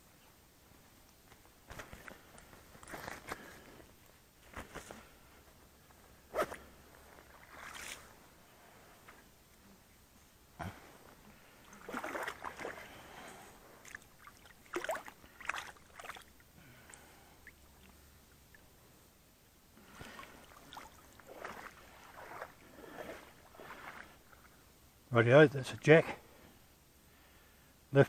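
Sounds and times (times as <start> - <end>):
shallow water splashing: 7.2 - 8.1, 11.4 - 13.2, 13.8 - 18.7, 19.8 - 24.6.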